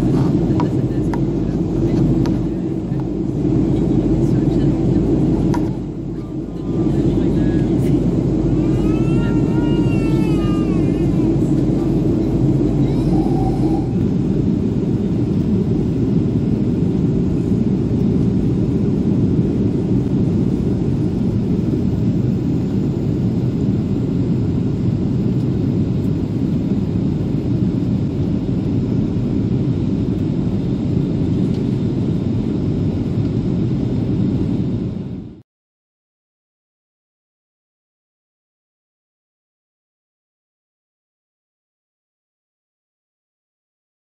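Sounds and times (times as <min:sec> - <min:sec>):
jet engine rumble in cabin: 0:00.0 - 0:35.4
rushing air: 0:11.0 - 0:17.4.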